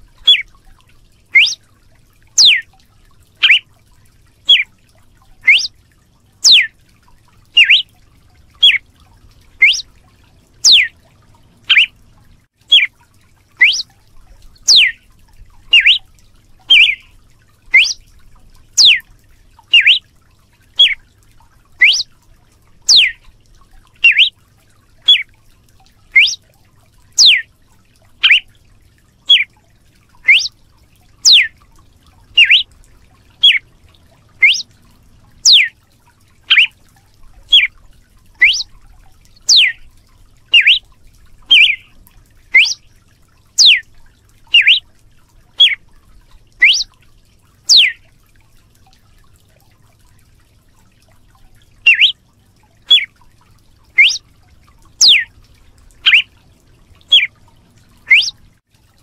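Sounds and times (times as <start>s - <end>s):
bird singing clear notes: 0.2s - 0.4s, 1.3s - 1.6s, 2.4s - 2.6s, 3.4s - 3.6s, 4.5s - 4.7s, 5.4s - 5.7s, 6.4s - 6.7s, 7.6s - 7.9s, 8.6s - 8.8s, 9.6s - 9.9s, 10.6s - 10.9s, 11.7s - 11.9s, 13.6s - 13.9s, 14.6s - 15.0s, 15.7s - 16.0s, 16.7s - 17.1s, 17.7s - 18.0s, 18.8s - 19.0s, 19.7s - 20.0s, 20.8s - 21.0s, 21.8s - 22.1s, 22.9s - 23.2s, 24.0s - 24.3s, 25.0s - 25.2s, 26.1s - 26.4s, 27.2s - 27.5s, 28.2s - 28.5s, 29.3s - 29.5s, 30.2s - 30.5s, 31.2s - 31.5s, 32.3s - 32.7s, 33.4s - 33.6s, 34.4s - 34.7s, 35.4s - 35.7s, 36.5s - 36.8s, 37.5s - 37.7s, 38.4s - 38.7s, 39.5s - 39.8s, 40.5s - 40.8s, 41.5s - 42.9s, 43.6s - 43.8s, 44.5s - 44.8s, 45.6s - 45.8s, 46.6s - 46.9s, 47.7s - 48.0s, 51.9s - 52.2s, 52.9s - 53.1s, 54.0s - 54.2s, 55.0s - 55.3s, 56.0s - 56.3s, 57.1s - 57.3s, 58.1s - 58.4s.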